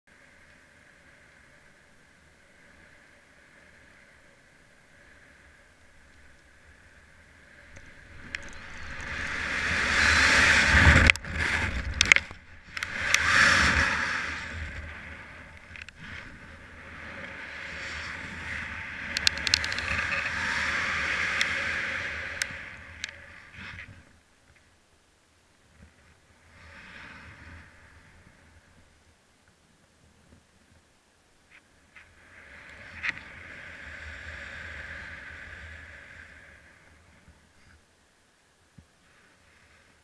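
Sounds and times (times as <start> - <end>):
wind rushing over microphone: 6.7 - 24.0.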